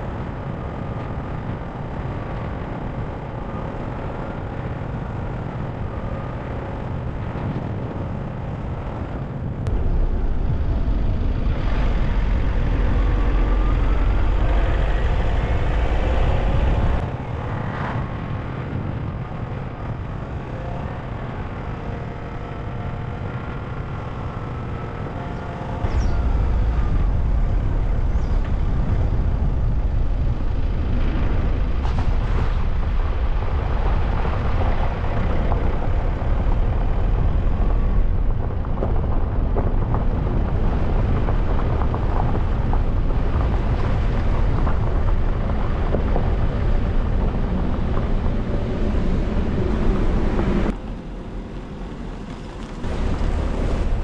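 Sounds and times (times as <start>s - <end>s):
car engine and road noise: 0.0s - 54.0s.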